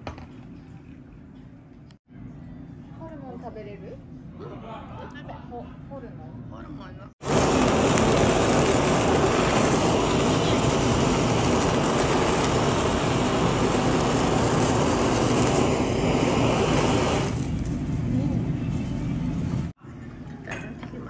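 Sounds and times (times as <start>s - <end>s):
blowtorch hissing: 7.2s - 19.8s.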